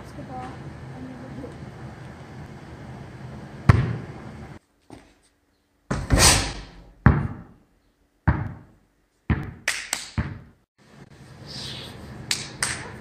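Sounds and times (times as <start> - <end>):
basketball bouncing on gym floor: 3.7 - 4.1, 6.8 - 7.6, 8.2 - 10.6
basketball striking hoop: 3.7 - 4.1, 5.9 - 7.6, 8.3 - 8.7, 9.3 - 9.6, 10.2 - 10.5.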